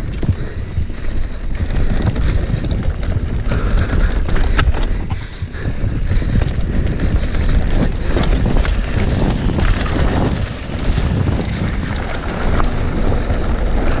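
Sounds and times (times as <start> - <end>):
mountain bike rattling on rough trail: 0.0 - 14.0
wind rushing over microphone: 0.0 - 14.0.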